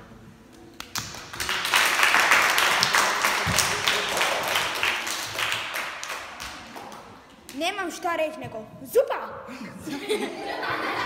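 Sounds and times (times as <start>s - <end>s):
children clapping: 0.8s - 7.7s.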